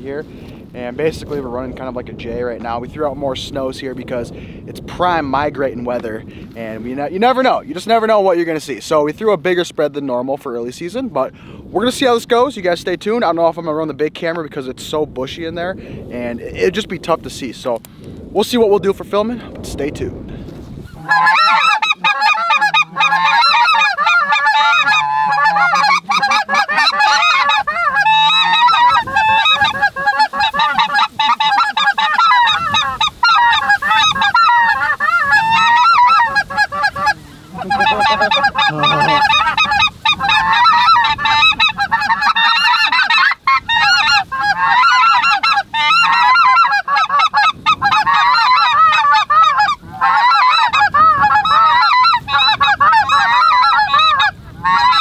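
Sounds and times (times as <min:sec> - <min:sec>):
geese honking in flight: 0:20.9 - 0:55.0.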